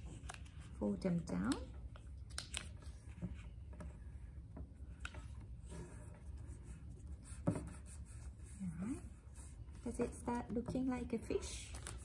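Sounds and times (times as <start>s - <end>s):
paper rustling as it is folded: 0.0s - 3.6s, 10.9s - 12.0s.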